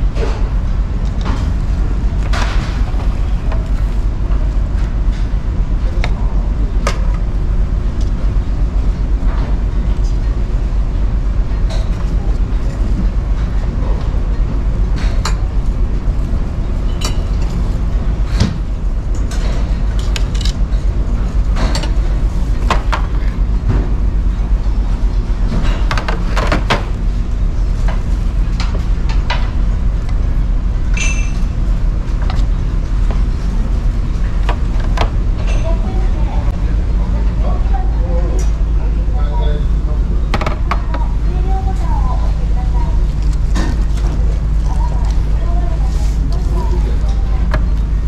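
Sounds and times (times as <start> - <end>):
ferry engines droning: 0.0 - 48.0.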